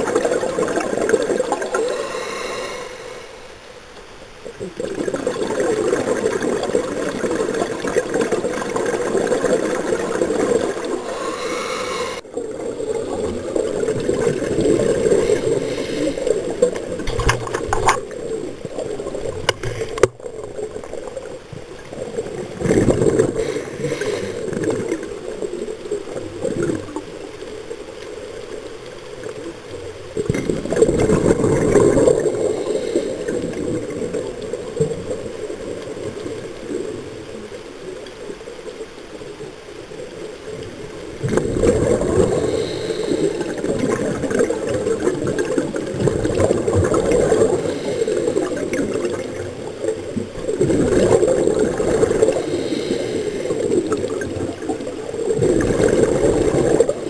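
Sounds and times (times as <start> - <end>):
bubbles gurgling underwater: 0.0 - 2.7, 4.4 - 57.0
diver breathing through regulator: 1.6 - 3.6, 10.7 - 12.3, 14.6 - 16.7, 23.0 - 24.9, 31.7 - 33.7, 41.8 - 44.5, 47.1 - 48.6, 51.9 - 54.2.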